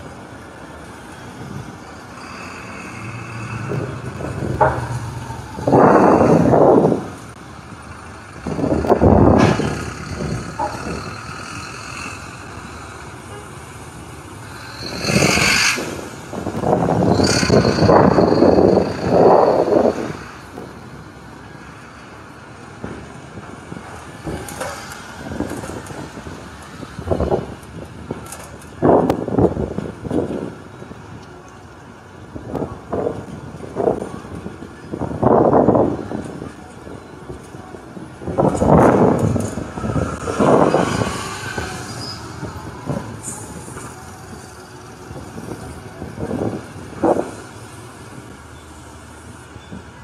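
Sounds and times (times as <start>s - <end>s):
street noise: 0.0s - 50.0s
vehicle passing close: 1.4s - 13.0s
knocks and clatter: 3.6s - 7.2s, 8.4s - 11.2s.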